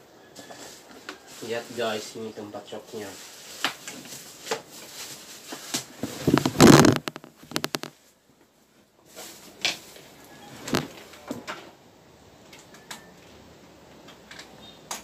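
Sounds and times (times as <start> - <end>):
packaging rustling: 3.2 - 7.9
knocks and clicks of handling: 6.2 - 7.9.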